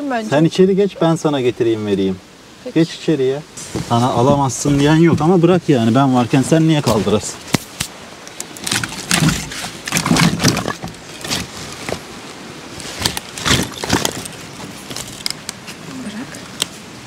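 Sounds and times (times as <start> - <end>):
camping gear rustling and knocking: 3.6 - 16.9.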